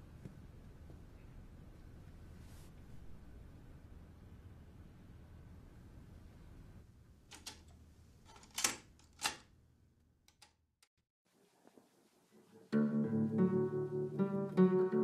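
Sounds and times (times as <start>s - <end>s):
faint low hum: 0.0s - 8.3s.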